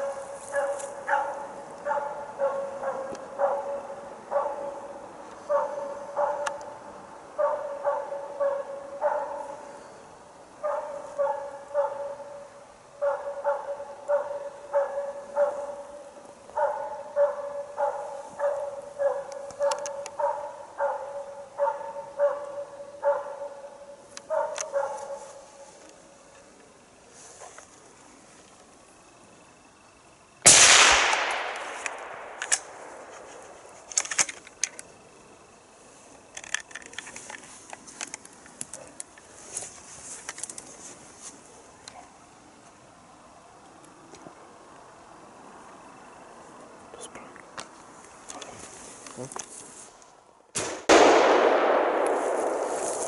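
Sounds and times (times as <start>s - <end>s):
dog barking: 0.0s - 4.9s, 5.5s - 6.6s, 7.4s - 9.7s, 10.6s - 25.4s.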